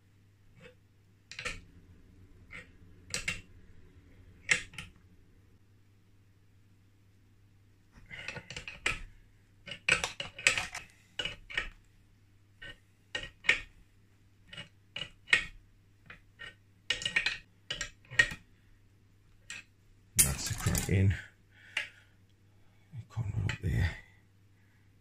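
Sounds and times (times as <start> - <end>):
metal tools clinking: 20.2 - 21.0.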